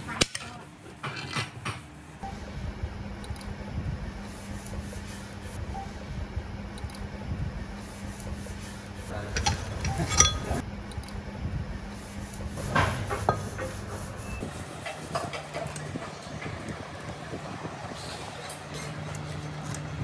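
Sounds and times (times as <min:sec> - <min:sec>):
low hum: 0:02.2 - 0:12.6
metal-on-metal knocks and clinks: 0:09.4 - 0:10.6.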